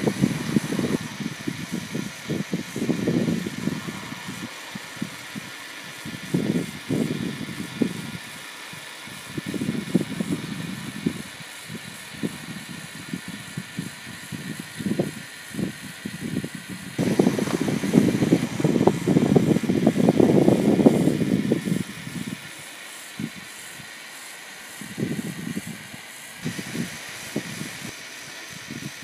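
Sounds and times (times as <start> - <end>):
toy electric motor running: 0.0 - 29.0
wheels crunching on concrete: 16.9 - 22.8.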